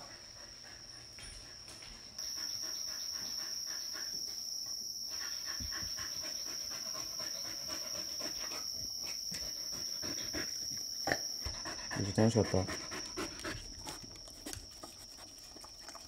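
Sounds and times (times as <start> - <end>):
dog panting rapidly: 0.0 - 4.4, 5.1 - 10.7, 11.5 - 16.0.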